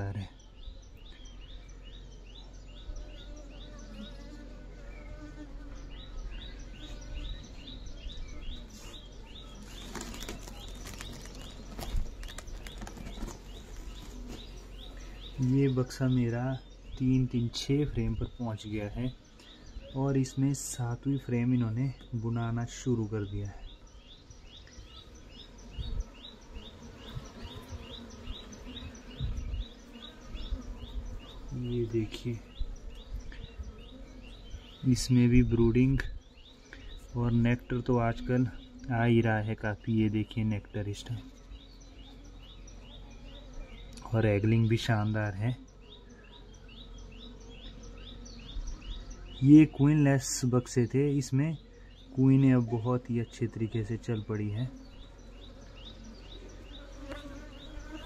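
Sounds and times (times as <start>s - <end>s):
bees buzzing: 0.0s - 58.0s
bird chirping: 0.0s - 58.0s
low hum of honeybees: 0.0s - 58.0s
wooden hive parts knocking: 9.5s - 14.7s
cloth rustling: 9.6s - 14.6s.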